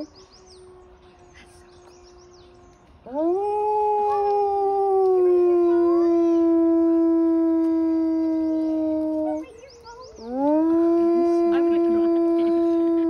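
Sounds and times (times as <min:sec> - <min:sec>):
wolf howling: 0:03.0 - 0:13.0.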